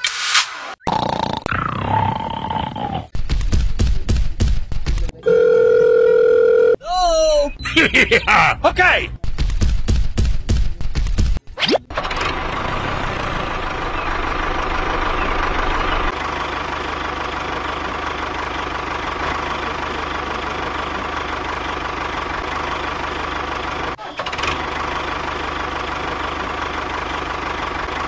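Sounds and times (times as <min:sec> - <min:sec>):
engine running with a whine: 0:11.9 - 0:28.0.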